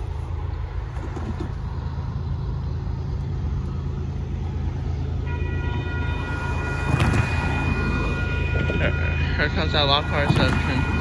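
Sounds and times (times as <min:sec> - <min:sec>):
car passing: 0:00.0 - 0:11.0
steady low rumble: 0:00.0 - 0:11.0
locomotive air horn chord: 0:05.2 - 0:11.0.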